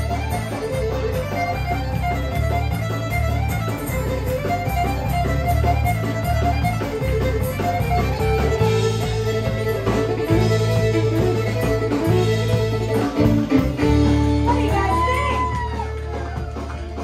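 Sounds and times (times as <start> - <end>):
drums steady beat: 0.0 - 17.0
electric bass: 0.0 - 17.0
fiddle playing fast runs: 0.0 - 17.0.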